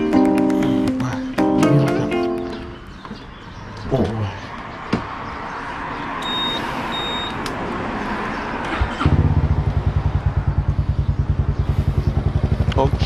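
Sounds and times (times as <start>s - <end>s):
short high beeps: 6.2s - 7.4s
scooter engine starting and idling: 8.3s - 13.0s.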